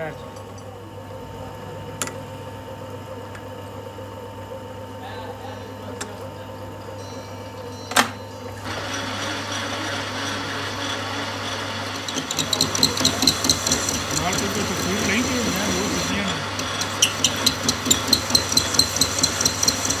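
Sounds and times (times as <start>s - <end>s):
lathe running: 8.4s - 20.0s.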